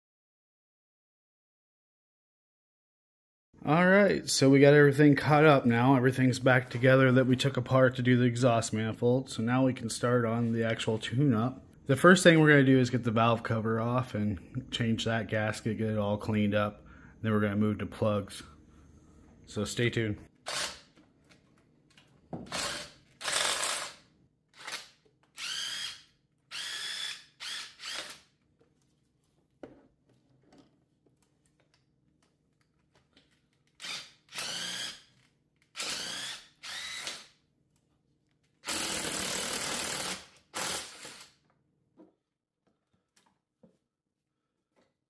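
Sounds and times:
electric ratchet whirring: 20.5s - 20.9s, 22.5s - 24.0s, 24.6s - 28.3s, 33.8s - 35.1s, 35.7s - 37.3s, 38.6s - 41.4s.

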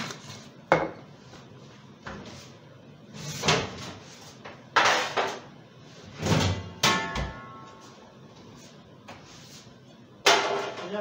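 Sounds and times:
kitchen knocks: 6.4s - 7.6s.

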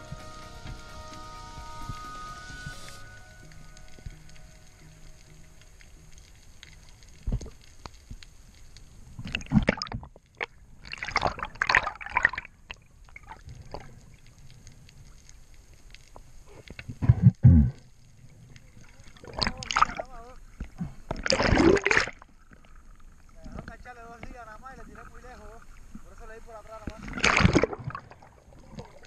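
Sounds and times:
water gurgling underwater: 9.1s - 14.4s, 18.6s - 23.8s, 26.8s - 29.0s.

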